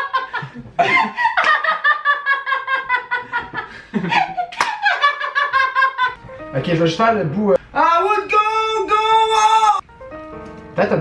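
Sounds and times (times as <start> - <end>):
people laughing: 0.0 - 6.2.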